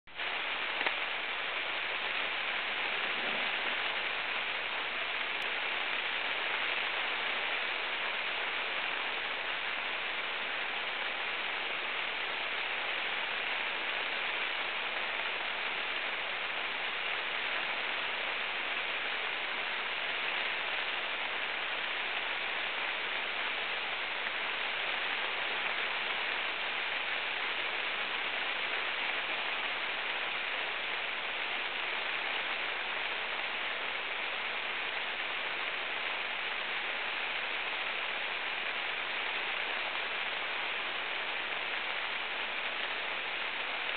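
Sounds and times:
rain falling steadily: 0:00.0 - 0:43.9.

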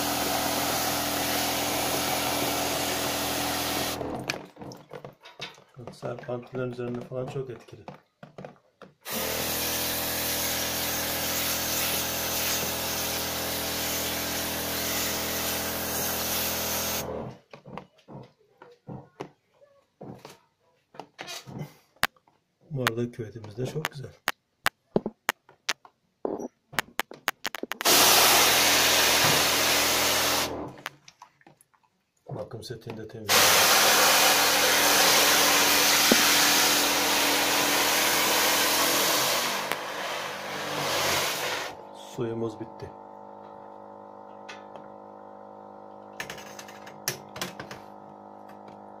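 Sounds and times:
electric pump hum: 0:00.0 - 0:04.8, 0:09.1 - 0:17.4, 0:27.8 - 0:30.9, 0:33.3 - 0:49.0
water spray hissing on plastic: 0:09.1 - 0:17.0, 0:27.8 - 0:30.5, 0:33.3 - 0:41.8
sharp clicks: 0:26.8 - 0:27.9.

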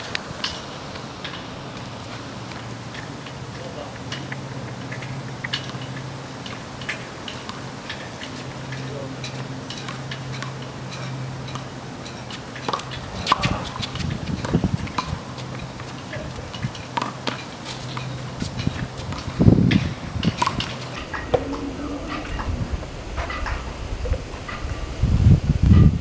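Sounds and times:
ball bouncing on asphalt: 0:00.0 - 0:21.4
sneakers scuffing on pavement: 0:12.2 - 0:21.0.

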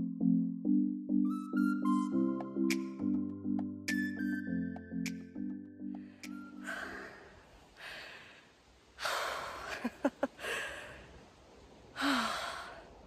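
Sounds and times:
woman breathing hard: 0:06.0 - 0:11.2, 0:12.0 - 0:13.0
woman sighing: 0:06.5 - 0:08.4, 0:09.0 - 0:11.0, 0:12.0 - 0:12.9.

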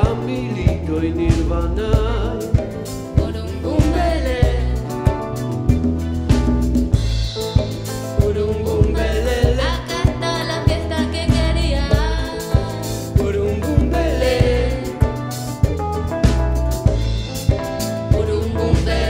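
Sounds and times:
woman singing lead vocal: 0:00.0 - 0:05.2, 0:08.2 - 0:15.3, 0:18.0 - 0:19.0
congas: 0:00.0 - 0:19.0
drum kit: 0:00.0 - 0:19.0
guitars: 0:00.0 - 0:19.0
keyboard: 0:00.0 - 0:19.0.

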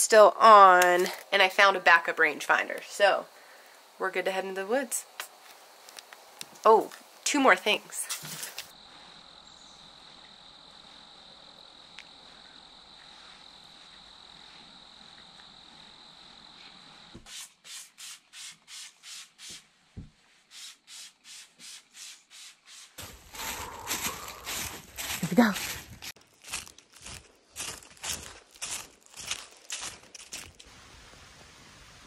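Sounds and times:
rustling: 0:08.0 - 0:09.2, 0:23.0 - 0:30.7.

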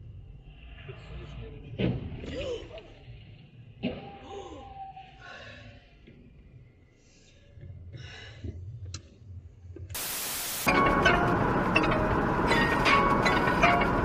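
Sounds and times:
burst of static hiss: 0:10.0 - 0:10.7.

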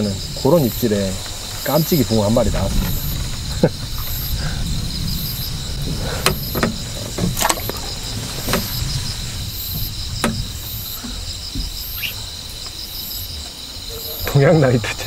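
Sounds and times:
insects chirping: 0:00.0 - 0:15.0
very high insect call: 0:00.0 - 0:15.0
sharp clicks and knocks: 0:06.2 - 0:08.8, 0:09.7 - 0:12.0.

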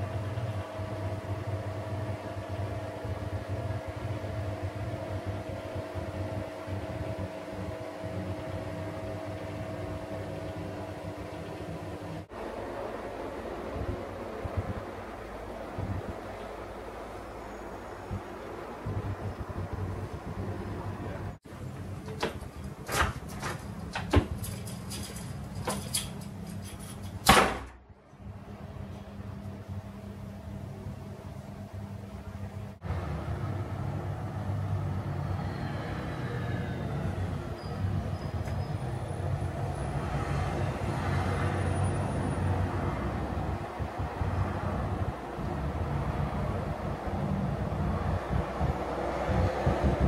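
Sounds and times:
extractor fan humming: 0:00.0 - 0:35.3.

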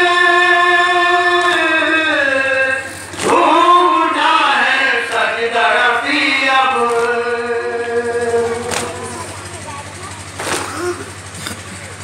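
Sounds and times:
men chanting a lament: 0:00.0 - 0:09.6.

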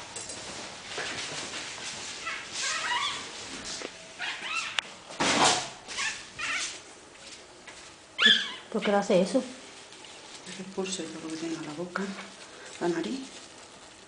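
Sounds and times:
dog whimpering: 0:02.2 - 0:03.2, 0:08.2 - 0:08.7.

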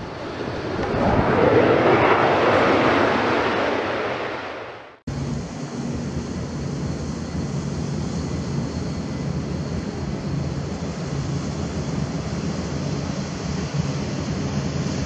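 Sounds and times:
loud whooshing rush: 0:00.0 - 0:05.0
distant jet engines rumbling: 0:00.0 - 0:15.0.

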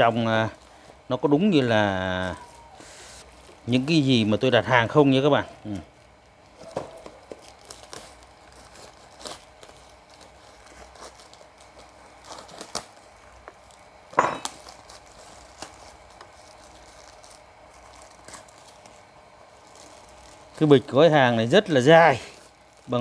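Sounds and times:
plastic crinkling and rustling: 0:00.0 - 0:23.0
knife slitting nylon bag: 0:19.6 - 0:23.0.

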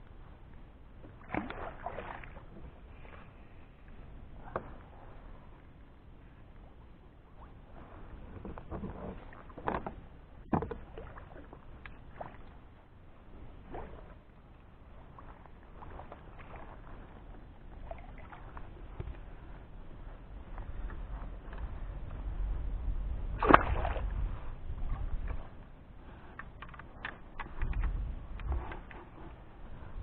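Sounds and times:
water splashing around kayak: 0:00.0 - 0:30.0
knocks and clicks from hull: 0:08.4 - 0:10.9.

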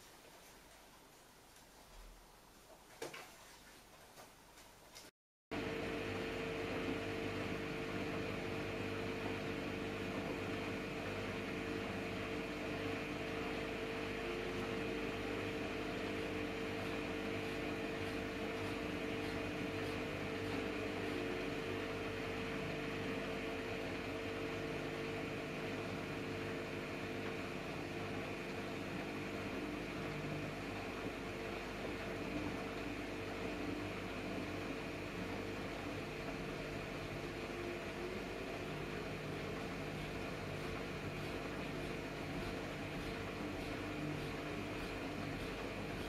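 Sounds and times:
washing machine motor hum: 0:05.5 - 0:46.0.

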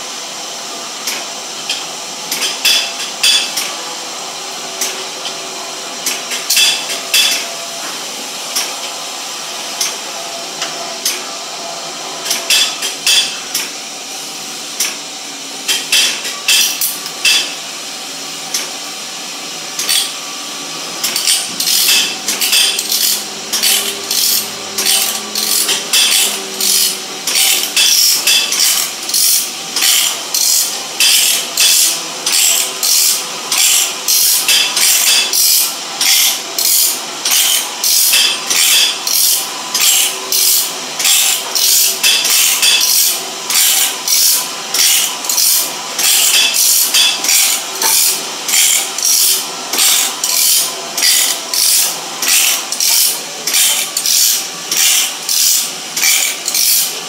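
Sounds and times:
machine humming: 0:00.0 - 0:57.0
grinding wheel rasping on saw teeth: 0:21.1 - 0:57.0.

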